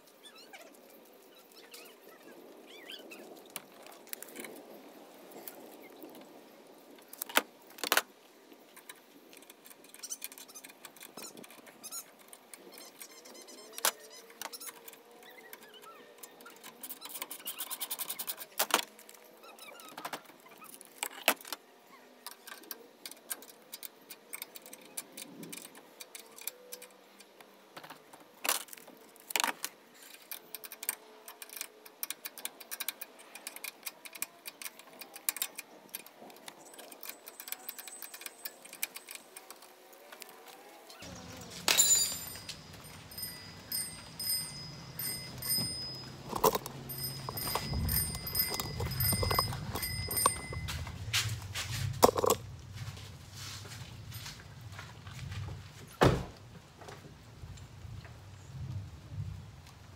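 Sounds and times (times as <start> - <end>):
metal clinks and knocks: 41.0 - 53.0.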